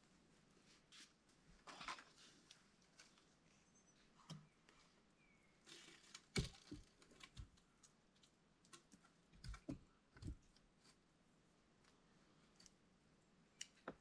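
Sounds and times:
wooden branches knocking: 6.2s - 7.6s.

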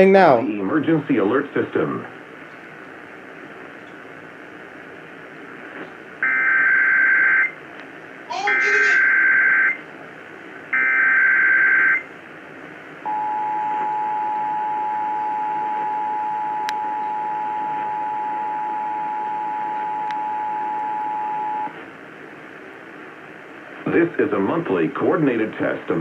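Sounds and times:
radio static hiss: 0.0s - 13.1s, 16.7s - 26.0s
two-tone attention signal: 10.8s - 12.0s.

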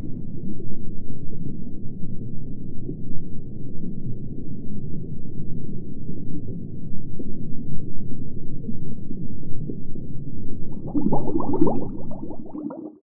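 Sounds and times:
deep underwater rumble: 0.0s - 13.0s
bubbling: 10.6s - 13.0s.

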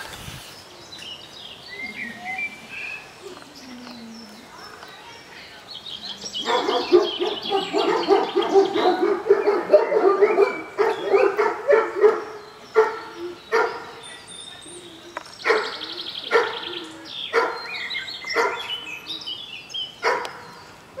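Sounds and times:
dogs barking and yipping: 6.4s - 14.0s, 15.4s - 18.9s, 20.0s - 21.0s.

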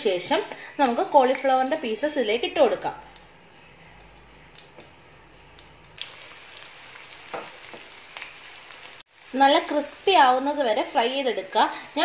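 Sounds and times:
oil sizzling in a pan: 6.0s - 12.0s.

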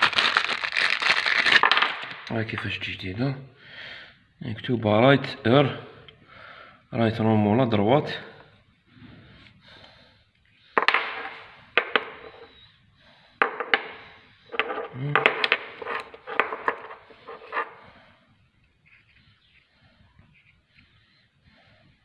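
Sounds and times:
metal rods knocking on hard floor: 10.8s - 12.5s, 13.4s - 17.8s.

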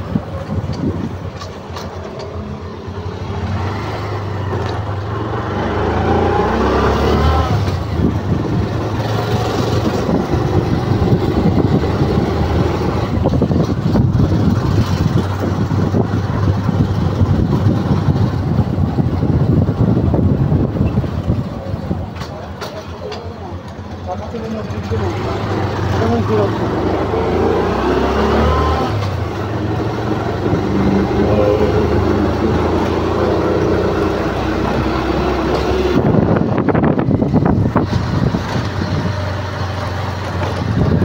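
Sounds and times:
road and wind noise: 0.0s - 41.0s
vehicle engine running: 7.5s - 28.1s.

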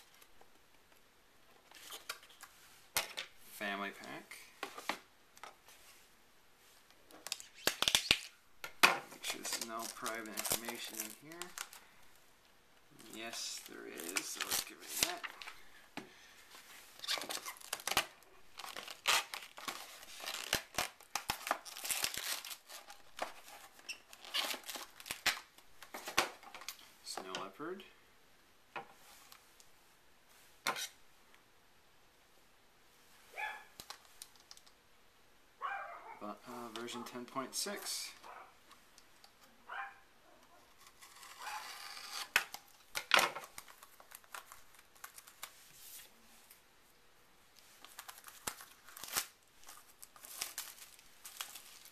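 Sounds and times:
crinkling and rustling: 0.0s - 27.8s, 33.0s - 34.8s, 35.6s - 51.9s
cardboard mailer tearing: 13.0s - 15.4s, 17.0s - 25.4s, 40.8s - 45.3s
light taps and crinkles: 33.8s - 34.8s, 42.4s - 46.6s
loud paper rip: 40.9s - 42.4s.

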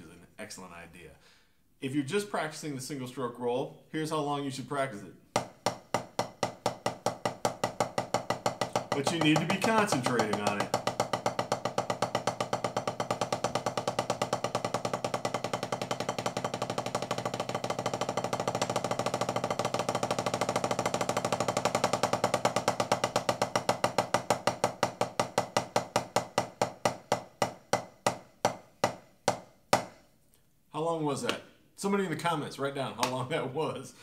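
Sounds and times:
drumsticks on practice pad: 5.4s - 30.0s.

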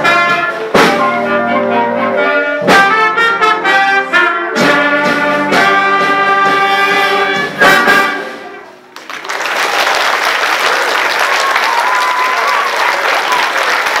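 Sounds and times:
audience applause: 8.8s - 14.0s.

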